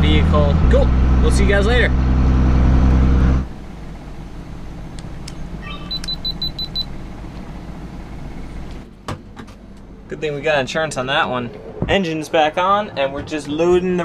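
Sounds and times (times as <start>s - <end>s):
diesel engine droning: 0.0s - 14.0s
low steady hum: 3.4s - 14.0s
high electronic beeps: 5.6s - 6.9s.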